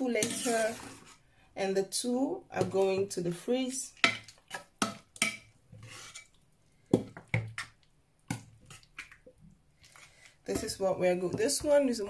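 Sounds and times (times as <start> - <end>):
ladle scraping a pan: 0.0 - 1.2, 5.2 - 6.4
metal ladle clinking on pan: 4.0 - 5.5.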